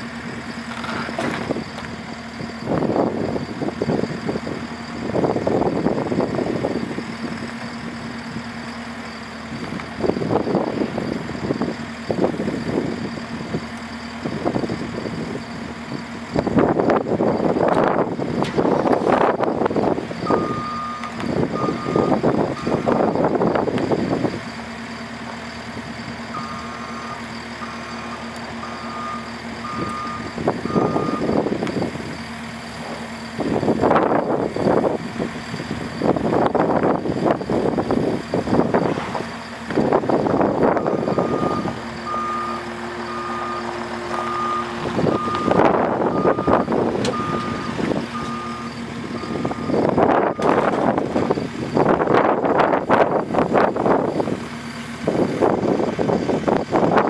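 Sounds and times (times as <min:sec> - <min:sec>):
diesel engine revving: 0:00.0 - 0:57.0
backup alarm beeping: 0:20.2 - 0:23.2, 0:26.3 - 0:31.5, 0:40.7 - 0:50.8.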